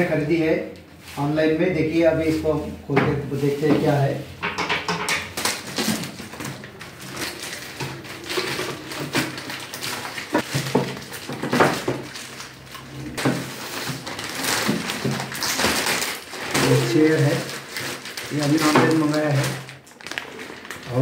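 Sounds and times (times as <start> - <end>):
plastic wrap crinkling: 5.3 - 21.0.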